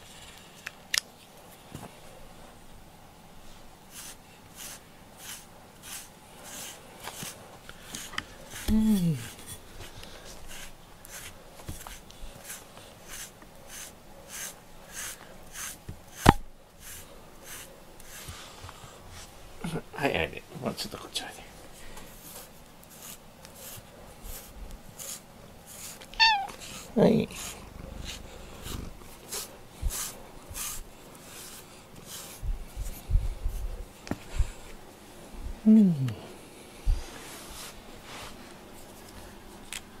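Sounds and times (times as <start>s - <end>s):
brush raking through cat fur: 3.9s - 19.4s, 22.0s - 34.8s, 37.0s - 39.1s.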